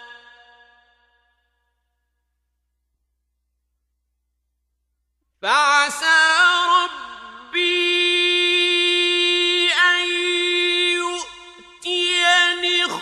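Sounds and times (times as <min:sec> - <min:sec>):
man chanting melodically with echo: 0:00.0 - 0:01.6, 0:05.4 - 0:13.0.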